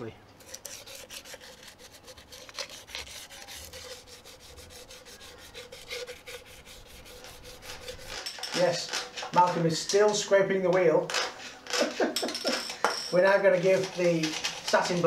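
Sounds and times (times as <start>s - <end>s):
emery cloth rubbing on metal: 0.4s - 10.4s, 13.1s - 15.0s.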